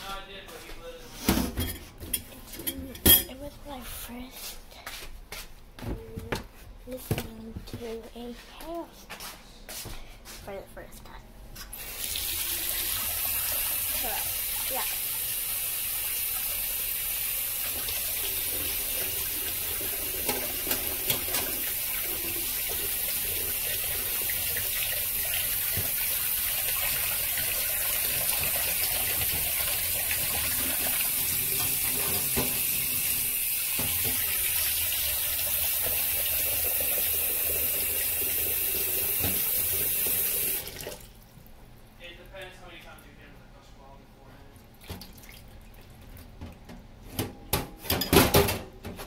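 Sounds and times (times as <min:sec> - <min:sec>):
hiss of running water: 0:11.8 - 0:40.7.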